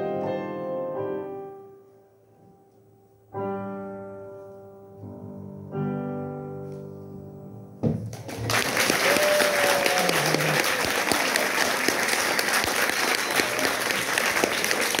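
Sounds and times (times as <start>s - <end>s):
audience clapping: 8.0s - 15.0s.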